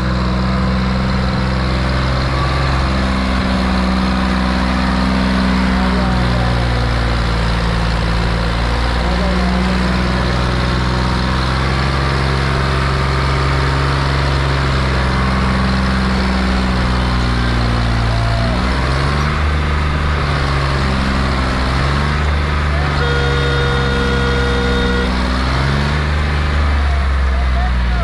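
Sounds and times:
tractor diesel engine straining: 0.0s - 28.0s
steady tone: 17.9s - 28.0s.

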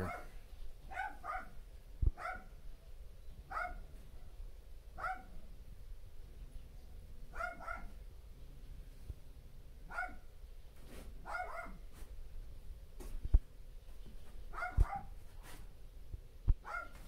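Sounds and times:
dog barking: 0.0s - 1.6s, 2.2s - 2.5s, 3.5s - 3.8s, 5.0s - 5.4s, 7.3s - 8.0s, 9.9s - 10.3s, 11.2s - 11.8s, 14.5s - 15.2s, 16.6s - 17.0s.

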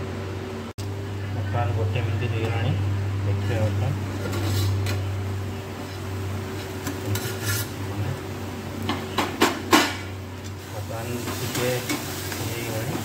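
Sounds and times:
steady low hum: 0.0s - 13.0s
spatula scraping in iron pan: 4.2s - 4.8s, 5.8s - 7.8s.

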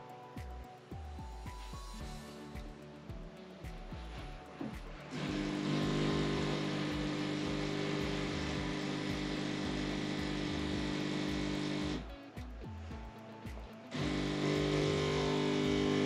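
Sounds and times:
coffee machine hiss: 5.1s - 12.0s, 13.9s - 16.0s
coffee machine motor hum: 5.1s - 12.1s, 13.9s - 16.0s.

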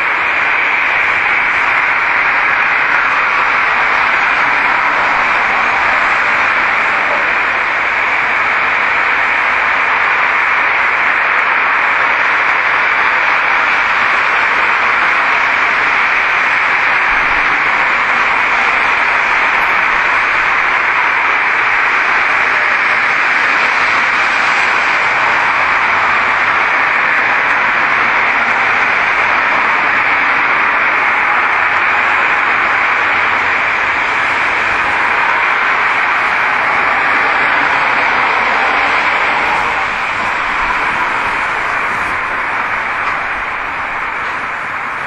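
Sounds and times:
loud steady hiss: 0.0s - 45.0s.

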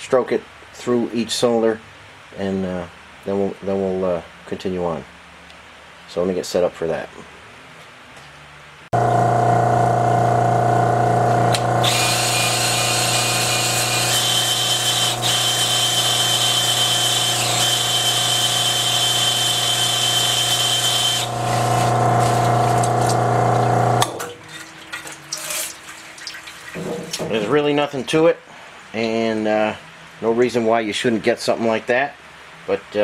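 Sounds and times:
electric drill whining: 9.0s - 24.1s
oil trickling: 24.2s - 27.4s.

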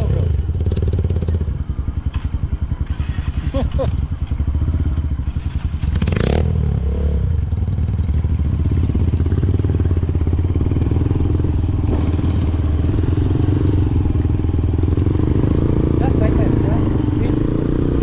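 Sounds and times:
dirt bike engine running: 0.0s - 18.0s.

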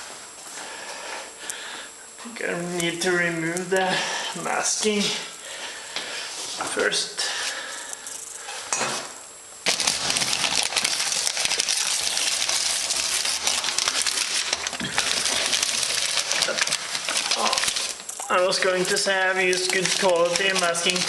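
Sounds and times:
paper and plastic crumpling: 9.6s - 21.0s.

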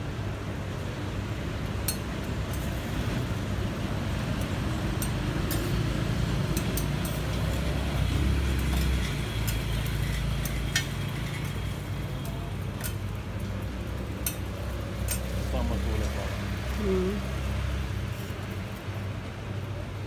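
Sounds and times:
metal spatula scraping griddle: 6.5s - 13.0s.

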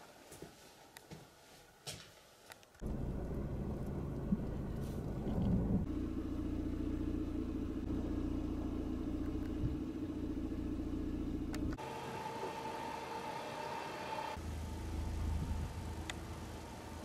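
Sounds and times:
truck diesel engine rumbling: 2.8s - 12.2s.

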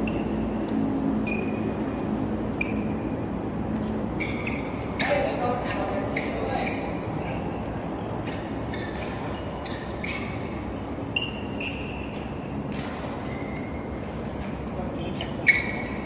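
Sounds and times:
sneakers squeaking on court floor: 0.0s - 7.6s, 8.2s - 16.0s
hum of a large hall: 0.0s - 16.0s.

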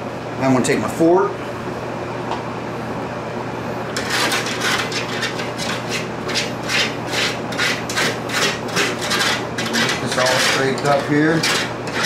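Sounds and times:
metal fork scraping baking pan: 4.0s - 12.0s.

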